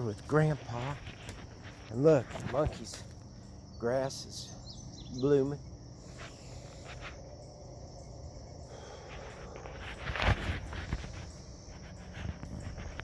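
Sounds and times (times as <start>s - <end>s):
rustling crunch: 0.0s - 3.4s, 6.0s - 7.4s, 8.7s - 13.0s
footsteps on dirt and mulch: 0.0s - 13.0s
high insect drone: 0.0s - 13.0s.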